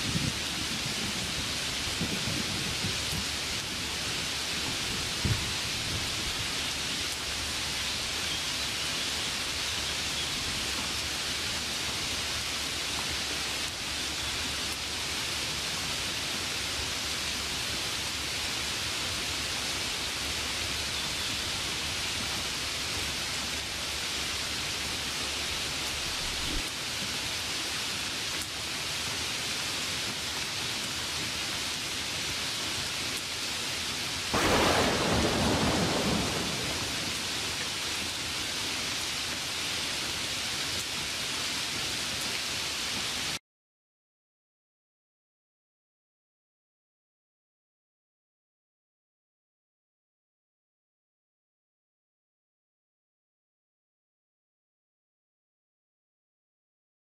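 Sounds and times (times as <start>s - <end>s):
rain hiss: 0.0s - 43.4s
thunder clap: 34.3s - 38.2s.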